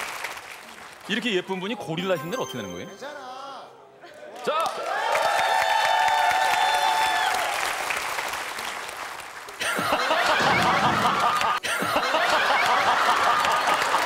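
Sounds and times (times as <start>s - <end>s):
audience clapping: 0.0s - 1.8s, 4.2s - 14.0s
audience laughing: 9.6s - 14.0s.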